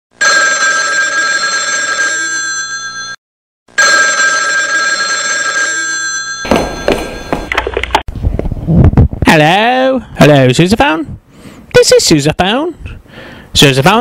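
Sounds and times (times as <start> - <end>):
telephone ringing: 0.2 - 3.2, 3.8 - 7.8.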